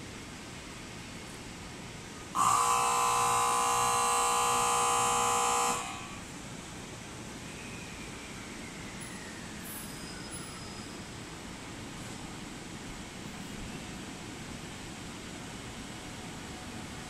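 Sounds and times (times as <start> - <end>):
train horn blast: 2.4 - 6.2.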